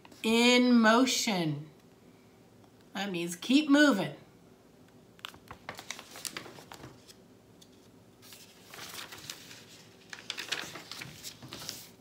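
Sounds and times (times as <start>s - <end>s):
paper page rustling: 5.2s - 12.0s.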